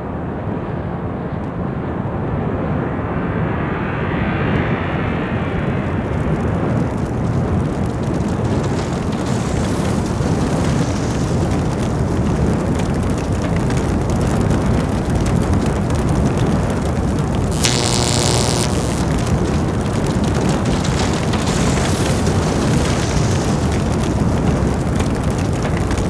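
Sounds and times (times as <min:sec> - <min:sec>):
tornado wind rushing: 0:16.6 - 0:26.0.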